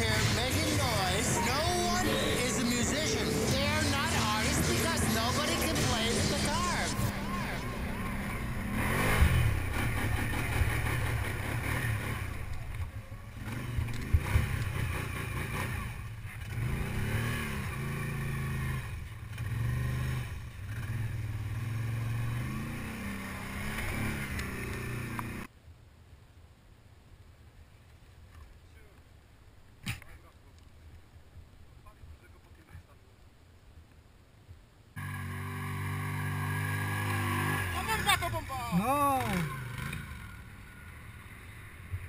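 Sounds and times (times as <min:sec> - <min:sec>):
atv engine revving: 0:00.0 - 0:25.5, 0:35.0 - 0:42.0.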